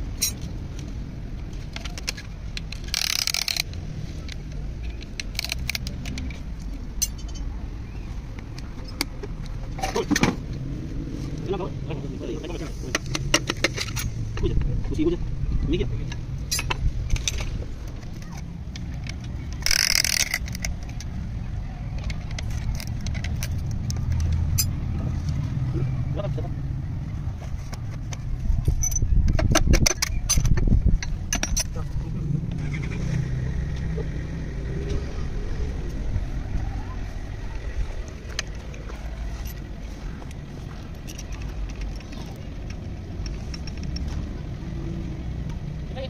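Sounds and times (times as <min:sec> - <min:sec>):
metallic clinks and taps: 0:00.2 - 0:00.5
low rumble: 0:30.0 - 0:41.0.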